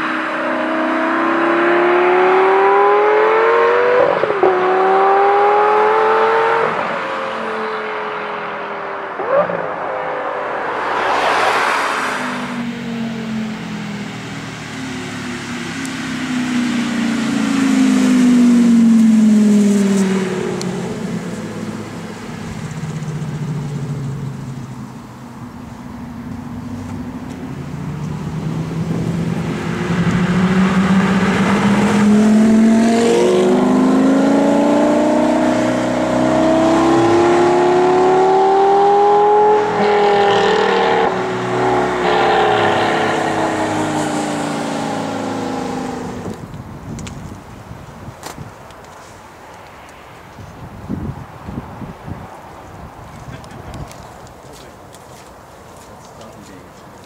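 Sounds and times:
sports car engine revving: 0.0s - 7.0s, 12.2s - 46.5s.

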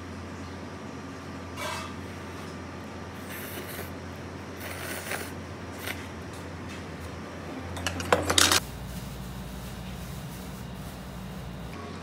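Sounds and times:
steady low hum: 0.0s - 12.0s
noodles slurped: 4.6s - 6.0s.

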